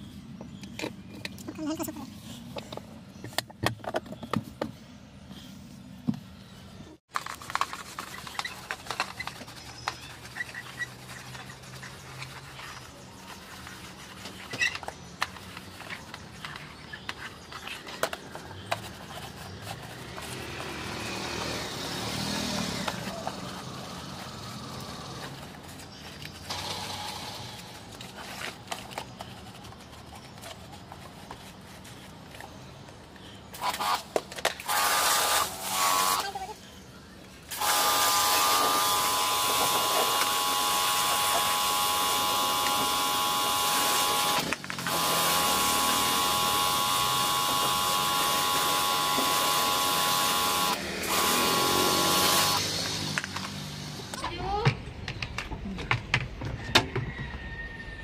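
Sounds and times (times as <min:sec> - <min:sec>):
handling and scrubbing sounds: 0:00.0 - 0:34.6.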